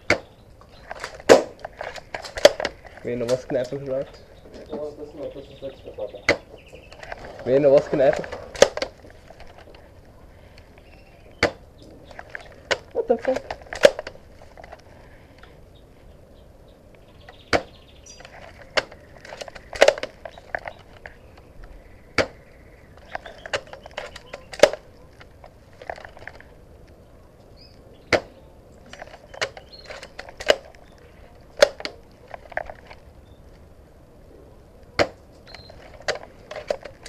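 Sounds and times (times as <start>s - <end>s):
airsoft rifle snapping: 0.0s - 3.8s, 6.3s - 9.8s, 11.3s - 14.8s, 17.3s - 21.5s, 22.1s - 22.4s, 23.0s - 26.5s, 28.1s - 33.0s, 35.0s - 37.0s.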